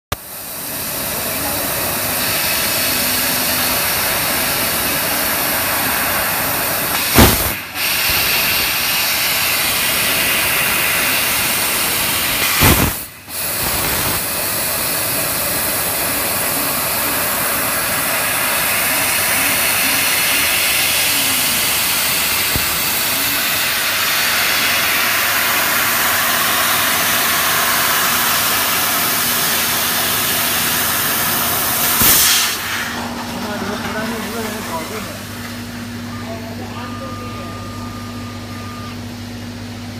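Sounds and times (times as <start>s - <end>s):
hiss of gas jetting: 0.2s - 33.2s
sharp pop: 7.0s - 8.3s, 12.4s - 13.1s, 31.9s - 32.6s.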